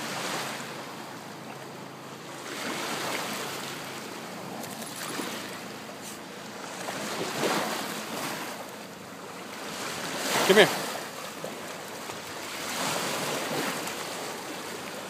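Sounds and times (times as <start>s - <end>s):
small waves lapping: 0.0s - 15.0s.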